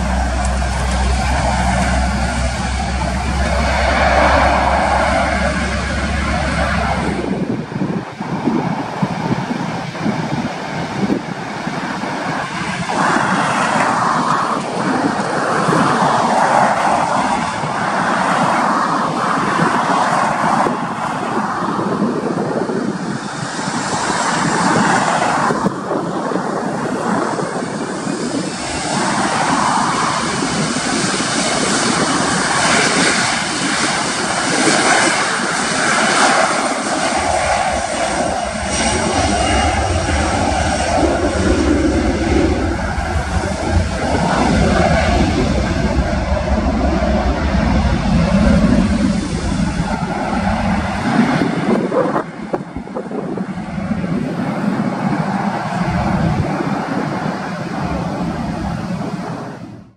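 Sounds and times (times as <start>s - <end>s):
deep rumble: 0.0s - 14.1s, 27.1s - 59.9s
jet engines running: 0.0s - 59.9s.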